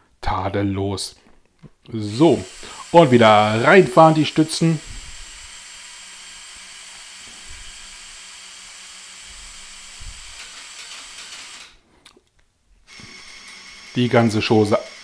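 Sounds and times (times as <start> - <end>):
small electric motor whirring: 2.1 - 11.8, 12.9 - 15.0.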